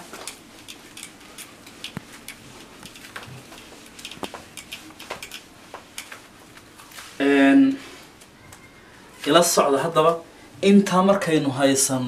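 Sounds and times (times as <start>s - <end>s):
small clicks and ticks: 0.2s - 6.2s.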